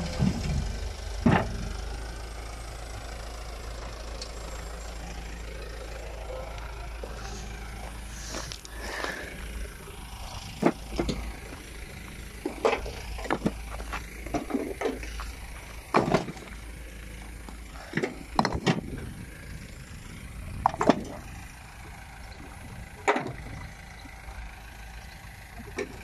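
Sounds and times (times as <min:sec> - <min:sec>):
low engine hum: 0:00.0 - 0:26.0
paving stones knocking together: 0:12.4 - 0:16.5, 0:17.5 - 0:18.9.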